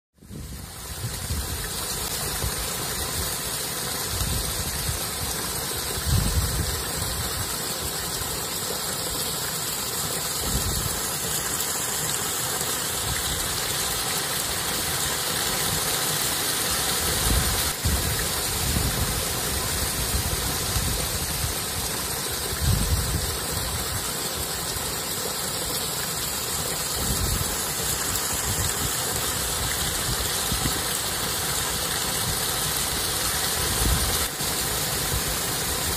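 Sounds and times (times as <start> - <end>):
stream rushing over rocks: 0.3 - 35.9
wind buffeting microphone: 6.0 - 6.8, 22.5 - 23.4.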